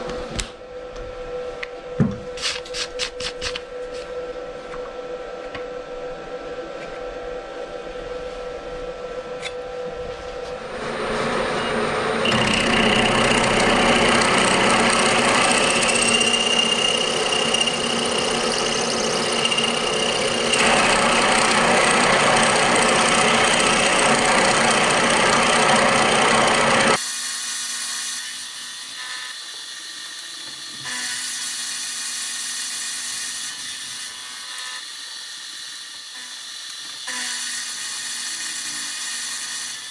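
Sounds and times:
milling machine cutting metal: 10.6s - 39.9s.

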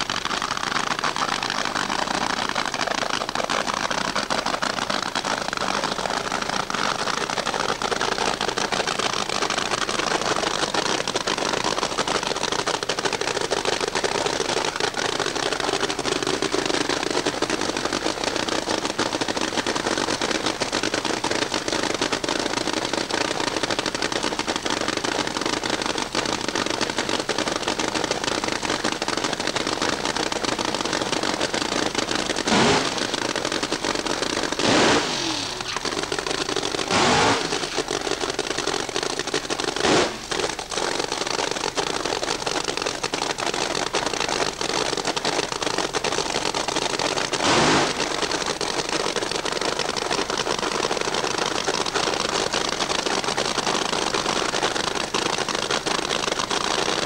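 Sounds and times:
dragster engine idling and revving: 14.7s - 53.6s.

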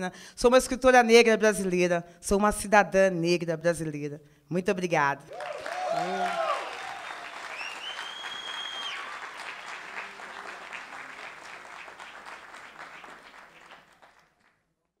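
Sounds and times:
audience applauding: 5.3s - 14.6s
high call from crowd: 5.4s - 11.8s.

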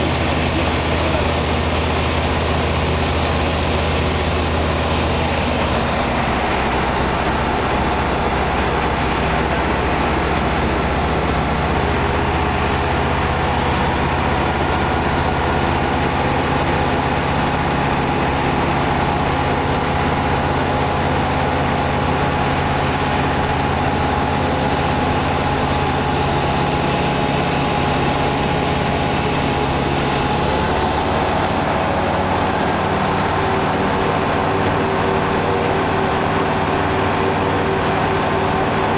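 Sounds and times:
aircraft engine and propeller: 0.0s - 38.9s.

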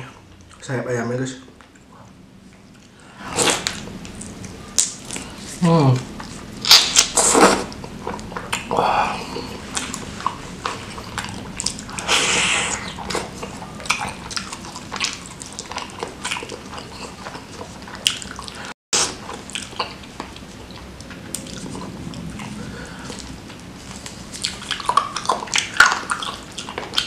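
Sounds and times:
lip smacks: 2.8s - 5.3s
wet chewing: 6.1s - 27.0s
hissing slurp: 9.1s - 13.7s.

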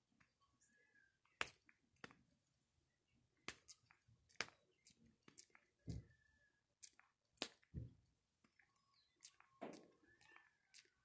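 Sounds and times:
soft dull thumps: 7.7s - 8.1s.

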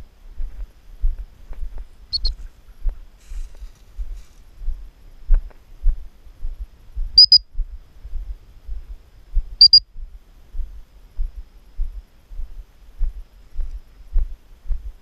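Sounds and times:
footsteps in dry grass: 0.4s - 14.9s
high-pitched double beeps: 2.1s - 2.3s, 7.2s - 7.5s, 9.6s - 9.8s.

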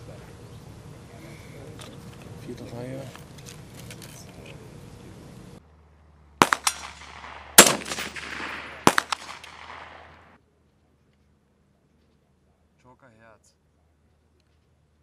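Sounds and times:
rifle shots with echo: 6.4s - 10.4s.

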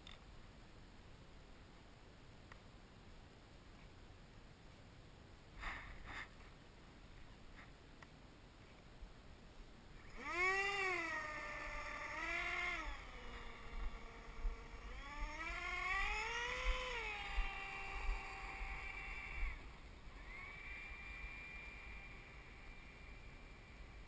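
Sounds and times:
electric fan motor whining: 10.0s - 24.0s.

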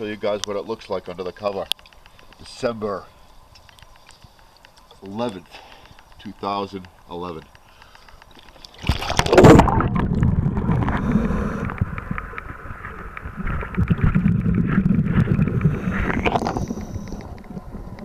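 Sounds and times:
underwater rumbling and bubbling: 8.8s - 18.0s.

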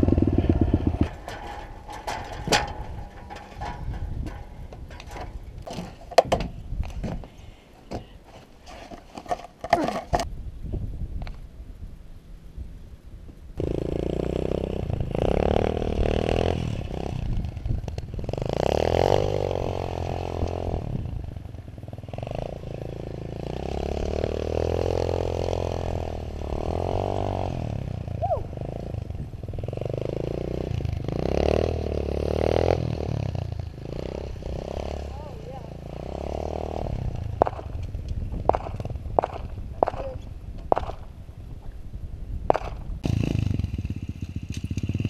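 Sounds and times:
dirt bike engine revving: 0.0s - 6.0s, 13.6s - 21.0s, 22.0s - 39.4s, 42.7s - 45.0s.

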